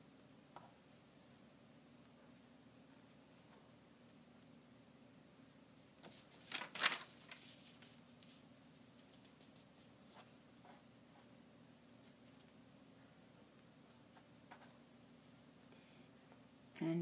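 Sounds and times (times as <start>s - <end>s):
low steady hum: 0.0s - 17.0s
paper and fabric rustling: 5.8s - 11.3s.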